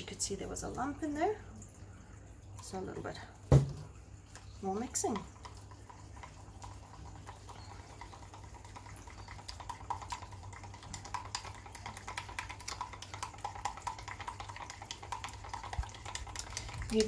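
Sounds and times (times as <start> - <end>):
stick stirring paint in a cup: 4.6 - 17.0.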